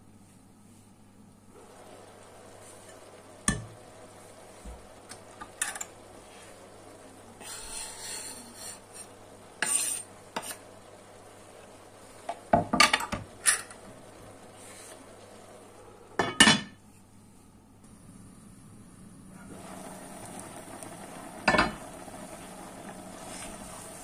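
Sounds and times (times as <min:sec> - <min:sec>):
kitchenware clinking and knocking: 0:12.6 - 0:13.7, 0:16.2 - 0:16.8.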